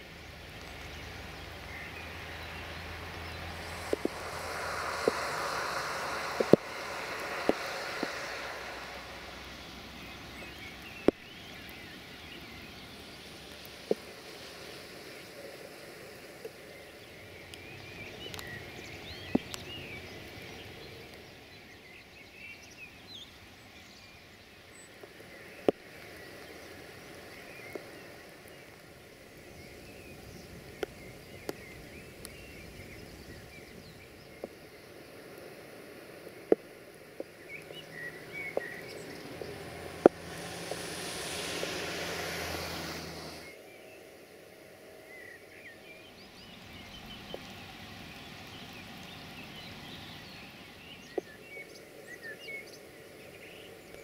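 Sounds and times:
hiss with low hum: 0.0 - 54.0
steady rain: 0.0 - 54.0
bird chirps: 0.6 - 13.4.

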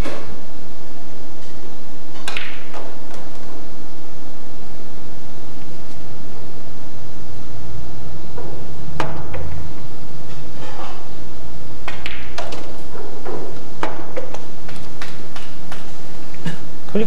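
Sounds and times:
pool balls clicking: 11.8 - 16.4.

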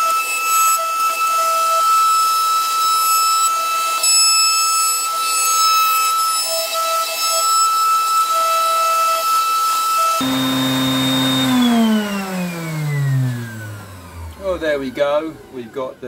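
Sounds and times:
router high-pitched whine: 0.0 - 15.6
router spinning down hum: 10.2 - 15.6.

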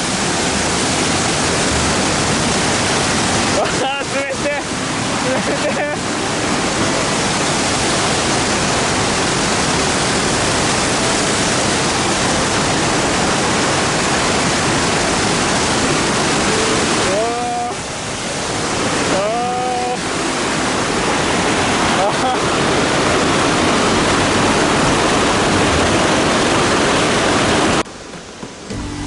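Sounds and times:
waterfall rushing: 0.0 - 29.0
person's voice: 3.6 - 4.7, 16.5 - 17.8, 19.1 - 20.1.

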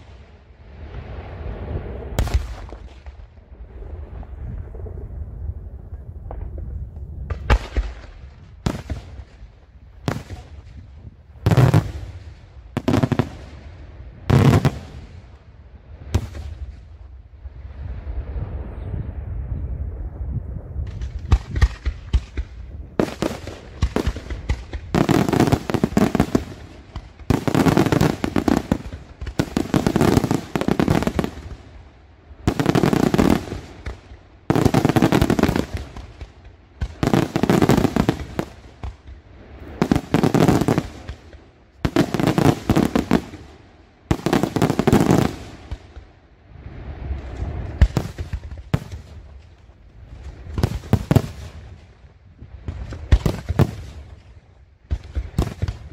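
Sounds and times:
fireworks crackling bangs: 14.3 - 15.3, 20.8 - 31.7, 32.5 - 46.1, 47.1 - 49.6, 50.2 - 52.0, 52.6 - 54.2.

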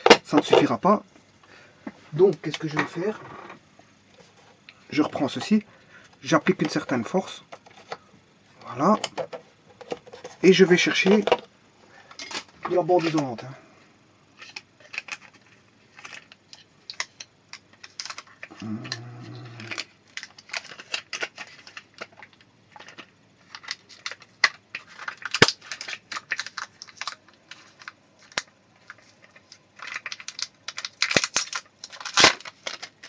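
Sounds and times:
small hard objects clattering: 0.0 - 0.9, 6.3 - 11.5, 14.4 - 33.0.

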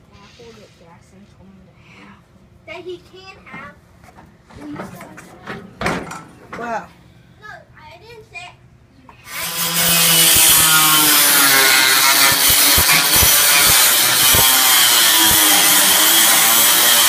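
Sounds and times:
power tool cutting plastic: 9.3 - 17.0.

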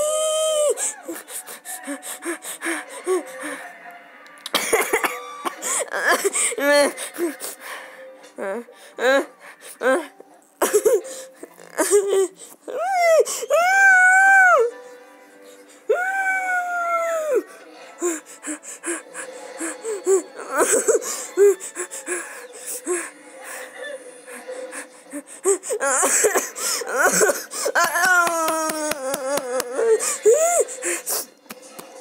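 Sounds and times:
wordless squeals and gasps: 17.1 - 27.9, 29.7 - 31.4.

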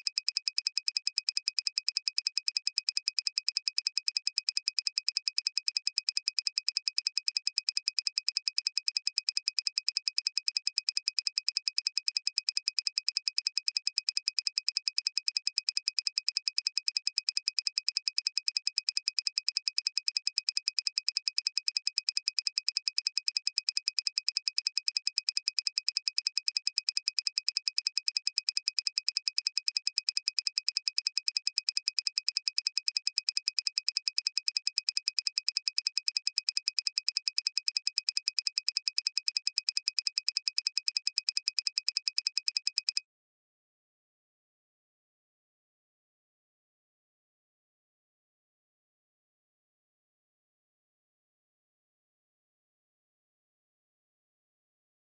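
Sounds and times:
high-pitched electronic ticks: 0.0 - 43.0.

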